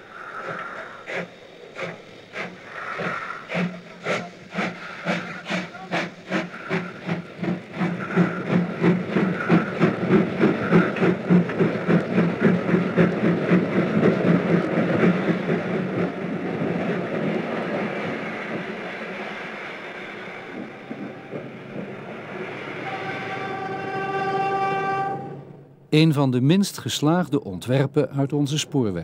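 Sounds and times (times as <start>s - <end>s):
coaches rolling over rails: 0.0s - 29.0s
steam locomotive chuffing: 0.0s - 29.0s
locomotive horn: 22.7s - 25.5s.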